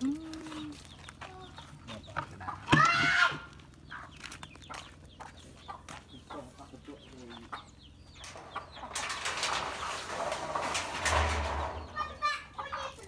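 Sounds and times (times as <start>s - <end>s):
chicken clucking: 0.0s - 2.9s, 3.7s - 10.6s, 11.8s - 13.0s
loud chicken call: 2.7s - 3.5s.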